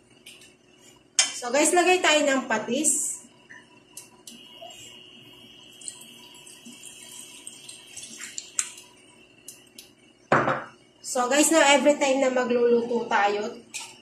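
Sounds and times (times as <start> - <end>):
liquid trickling into pot: 5.7 - 9.9.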